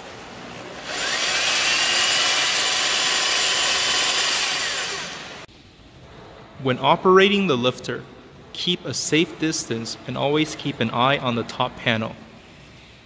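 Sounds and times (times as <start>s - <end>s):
electric winch motor whine: 0.0s - 5.5s.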